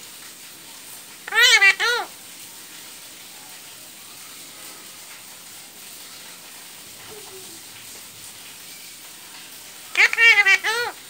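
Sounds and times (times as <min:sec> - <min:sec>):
outdoor ambience hiss: 0:00.0 - 0:11.0.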